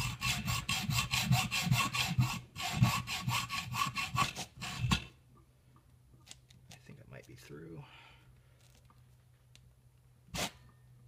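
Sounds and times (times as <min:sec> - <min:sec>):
hacksaw cutting metal: 0:00.0 - 0:05.1.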